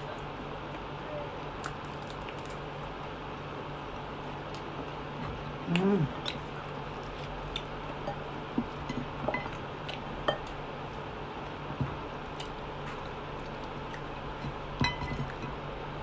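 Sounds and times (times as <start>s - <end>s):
steady low hum: 0.0s - 16.0s
chicken being torn apart: 1.6s - 2.9s.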